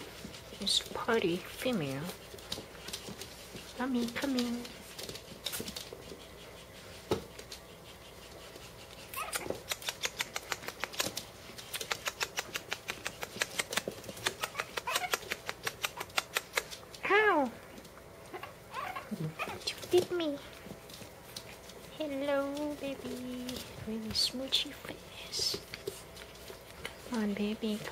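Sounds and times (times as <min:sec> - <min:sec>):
dogs making quick clicking sounds: 0:02.1 - 0:17.0
dog squealing: 0:09.1 - 0:10.4, 0:14.4 - 0:15.3, 0:18.3 - 0:19.6.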